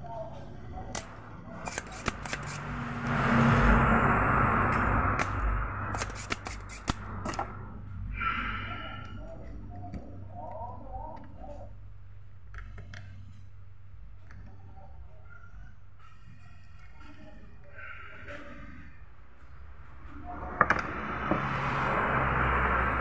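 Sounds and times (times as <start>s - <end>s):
loud rushing noise: 1.4s - 9.0s, 20.1s - 23.0s.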